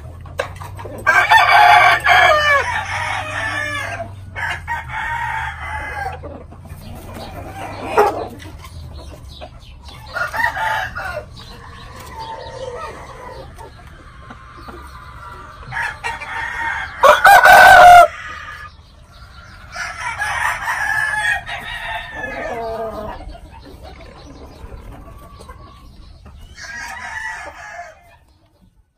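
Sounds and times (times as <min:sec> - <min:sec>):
rooster crowing: 0:01.0 - 0:06.2, 0:10.1 - 0:11.4, 0:15.7 - 0:18.6, 0:19.7 - 0:23.2.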